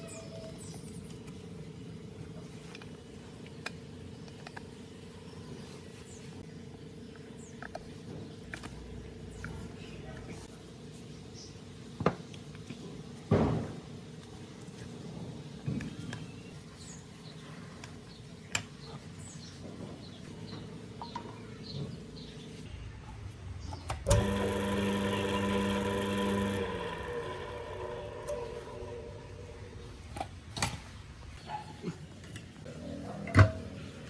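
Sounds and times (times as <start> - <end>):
electric motor humming: 24.1 - 30.0.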